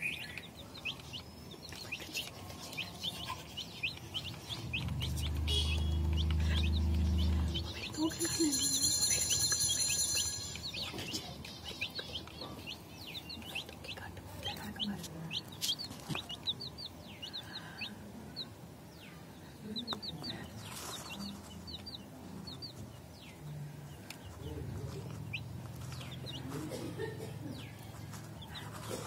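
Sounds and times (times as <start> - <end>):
birds chirping: 0.0 - 29.0.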